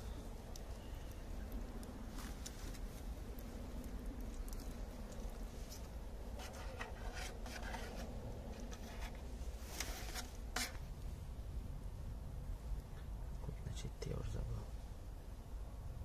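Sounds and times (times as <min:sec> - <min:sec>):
rag wiping plastic: 0:06.4 - 0:10.8.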